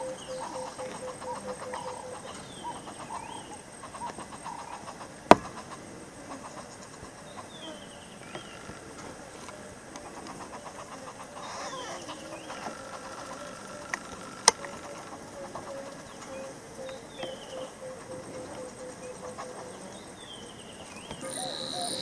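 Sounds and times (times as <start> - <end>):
hornbills clucking: 0.0 - 22.0
high falling bird chirps: 20.6 - 22.0.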